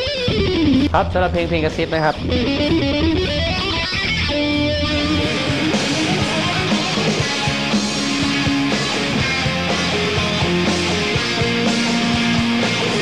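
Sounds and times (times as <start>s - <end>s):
electric guitar melody: 0.0s - 13.0s
drums and cymbals: 5.0s - 13.0s.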